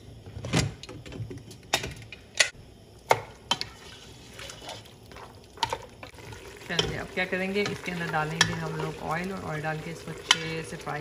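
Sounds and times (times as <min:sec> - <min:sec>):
spatula knocking and scraping pot: 0:03.1 - 0:10.9.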